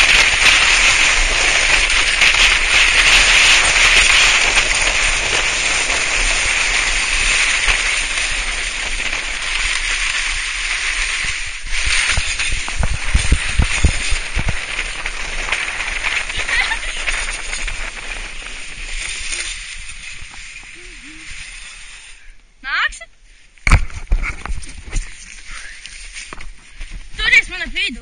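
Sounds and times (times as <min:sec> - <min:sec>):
sledge scraping over snow: 0:00.0 - 0:22.3
wind: 0:00.0 - 0:28.0.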